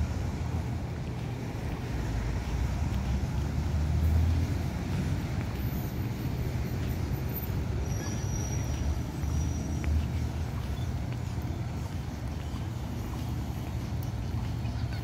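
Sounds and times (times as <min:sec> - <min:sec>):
distant road traffic: 0:00.0 - 0:15.0.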